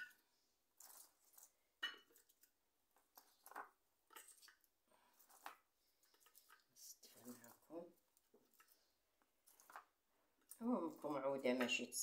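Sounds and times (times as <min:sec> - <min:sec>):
kitchenware clicks and scrapes: 0:00.0 - 0:07.7.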